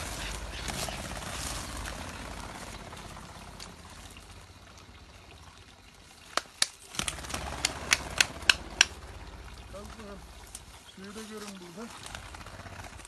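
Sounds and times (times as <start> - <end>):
water trickling: 2.6 - 13.0.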